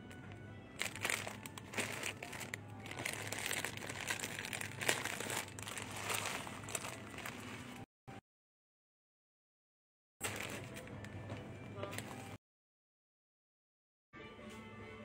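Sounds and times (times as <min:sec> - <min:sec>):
plastic wrapping crinkling: 0:00.8 - 0:07.9, 0:10.2 - 0:10.9.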